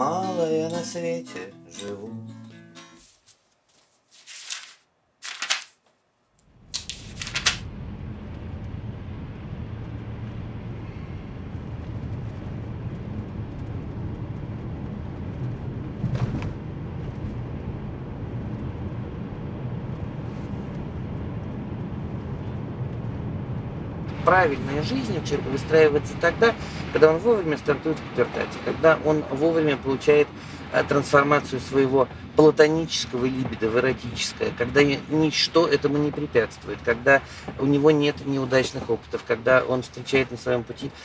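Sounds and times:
rustling: 2.8 - 7.7
car engine and road noise: 6.4 - 41.0
car bump: 16.0 - 17.4.

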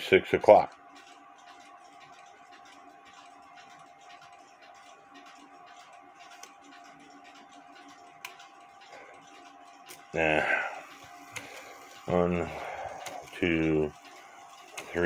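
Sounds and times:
clock movement metallic clicks: 0.0 - 15.0
faint steady hum: 0.0 - 15.0.

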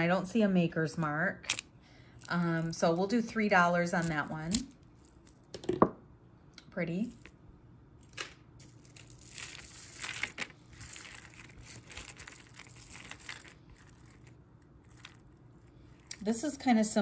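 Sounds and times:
beads clicking and rustling: 8.0 - 16.6.

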